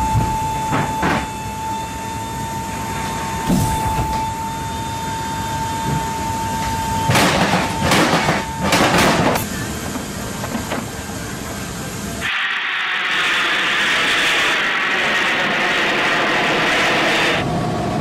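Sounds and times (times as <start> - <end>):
harsh hiss: 12.2 - 17.4.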